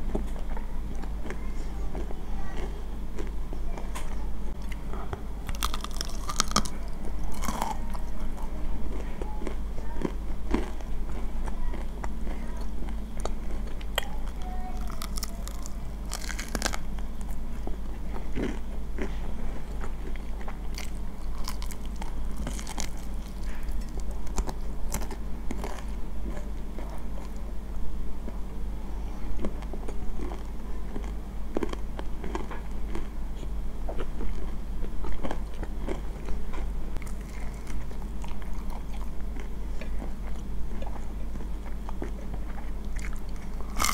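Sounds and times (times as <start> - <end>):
soft chewing: 0.0 - 43.9
crunchy fried chicken bites: 5.4 - 8.1, 8.9 - 12.4, 13.2 - 17.4, 18.0 - 19.2, 19.8 - 27.4, 29.4 - 33.2, 37.0 - 43.9.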